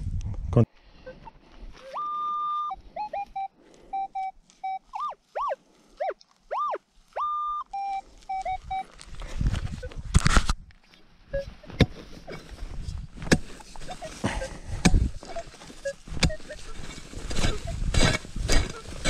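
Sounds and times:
metal detector beeps and tones: 0:01.0 - 0:09.0, 0:11.3 - 0:12.4, 0:13.6 - 0:19.0.

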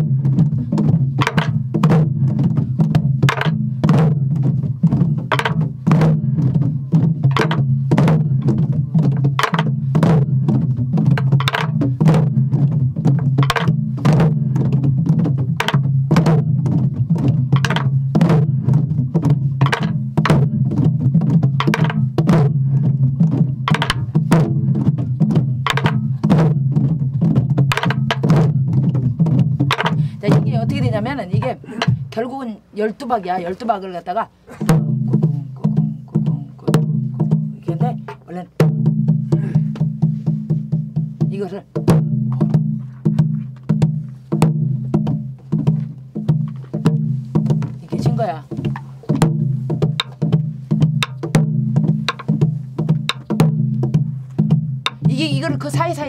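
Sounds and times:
barrel drums played together: 0:00.0 - 0:32.5, 0:33.3 - 0:56.0
sharp drum stick strokes: 0:00.4 - 0:14.8, 0:17.2 - 0:20.9, 0:21.5 - 0:26.6, 0:27.6 - 0:32.2, 0:45.4 - 0:56.0.

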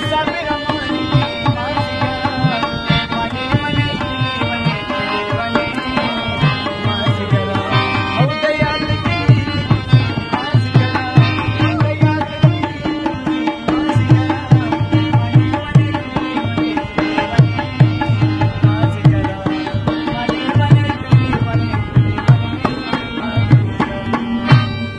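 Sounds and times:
harmonium melody: 0:00.0 - 0:24.9
tabla drumming: 0:00.0 - 0:24.9.

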